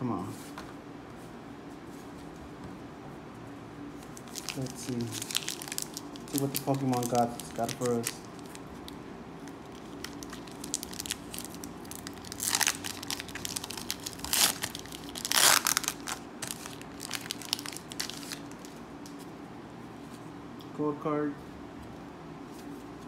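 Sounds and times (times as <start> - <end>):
foil wrapper crinkling: 4.0 - 18.8
foil wrapper ripping: 4.1 - 18.7.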